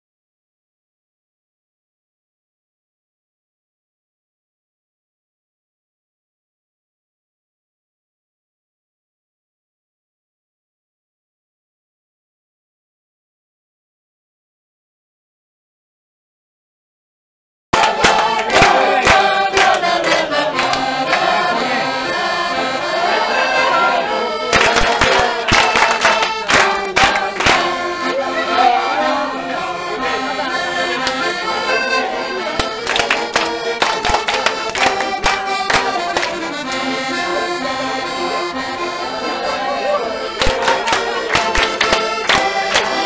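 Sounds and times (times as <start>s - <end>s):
accordion music: 17.8s - 43.0s
people clapping along: 17.8s - 43.0s.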